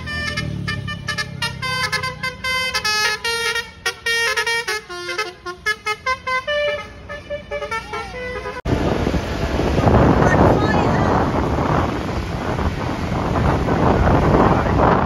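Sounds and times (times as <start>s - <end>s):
bus musical horn tune: 0.0s - 8.7s
wind rushing over microphone: 8.6s - 15.0s.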